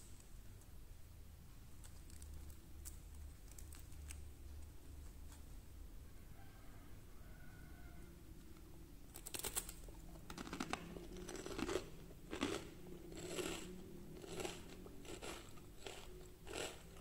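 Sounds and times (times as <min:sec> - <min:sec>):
crispy pancake crunching: 0:09.1 - 0:17.0.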